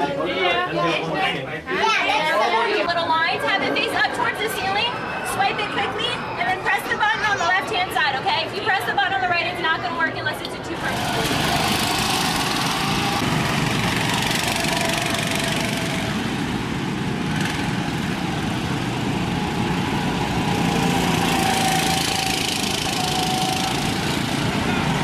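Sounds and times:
go-kart engines buzzing: 10.5s - 25.0s.

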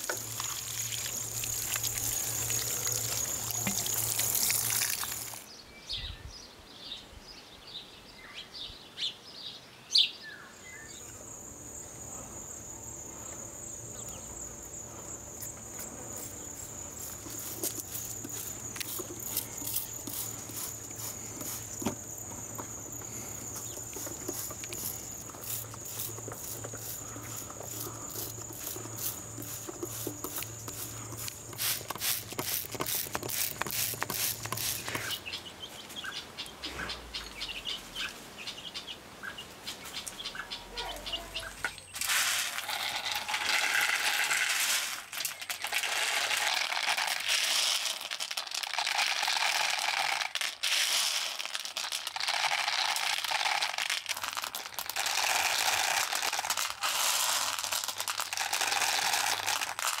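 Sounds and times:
crickets chirping: 0.0s - 5.5s, 10.3s - 38.1s
dried beans rattling in bag: 0.0s - 5.5s, 15.5s - 35.2s, 41.9s - 60.0s
plastic bag crinkling: 0.0s - 5.5s, 17.0s - 22.2s, 23.0s - 35.2s, 42.0s - 60.0s
birds chirping: 0.3s - 17.4s, 33.1s - 42.0s.

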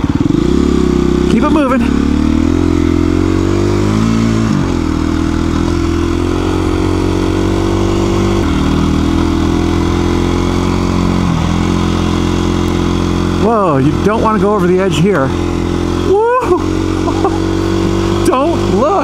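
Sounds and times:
dirt bike engine running: 0.0s - 19.0s.

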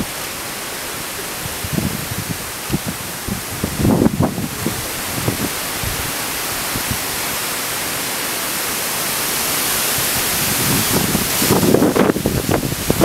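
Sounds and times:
wind rushing through trees: 0.0s - 13.0s
wind buffeting microphone: 1.2s - 7.4s, 9.8s - 13.0s.

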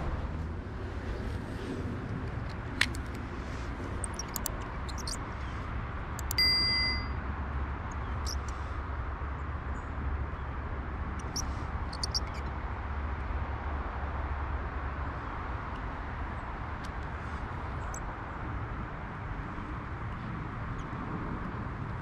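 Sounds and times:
low wind rumble on microphone: 0.0s - 22.0s
light clicks: 3.9s - 5.2s, 6.2s - 7.0s, 11.2s - 12.5s
sharp click: 4.0s - 5.2s, 6.2s - 7.1s, 12.0s - 12.4s
bell-like ding: 6.3s - 7.2s.

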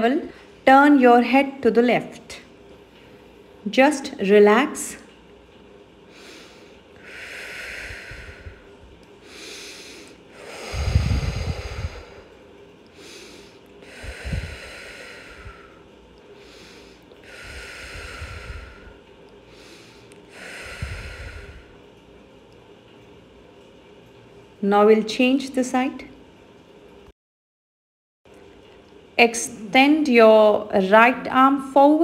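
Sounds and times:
woman breathing deeply: 6.1s - 22.0s.

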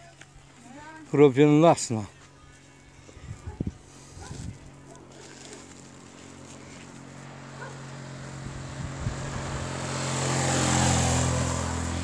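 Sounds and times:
vehicle engine passing: 5.1s - 12.0s.

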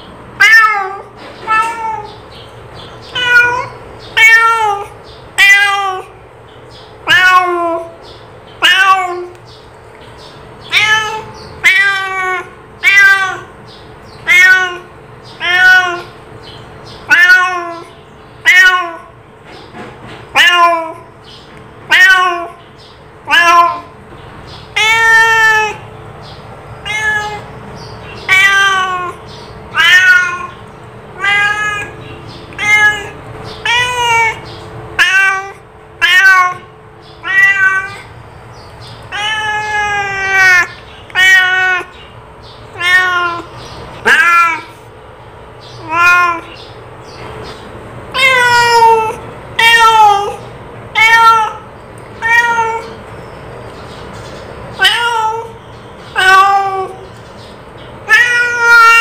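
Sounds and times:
cat meowing: 0.4s - 2.3s, 3.0s - 6.2s, 7.0s - 8.0s, 8.6s - 9.4s, 10.6s - 16.2s, 17.0s - 19.2s, 20.3s - 21.2s, 21.8s - 22.6s, 23.2s - 24.0s, 24.6s - 25.9s, 26.8s - 38.2s, 38.9s - 42.1s, 42.7s - 44.9s, 45.7s - 46.8s, 48.1s - 53.1s, 54.7s - 57.1s, 58.0s - 59.0s.

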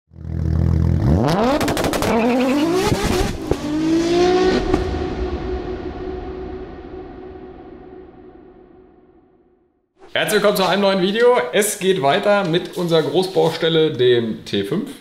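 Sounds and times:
car engine revving: 0.1s - 6.8s.

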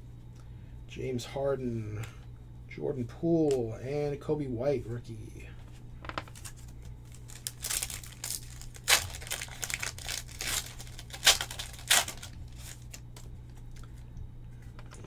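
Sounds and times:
foil wrapper tearing and crinkling: 6.3s - 13.9s.

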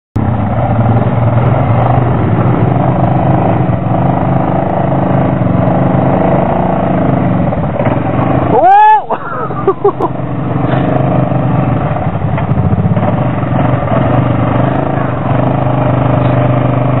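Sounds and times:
quad engine running loudly: 0.2s - 17.0s.

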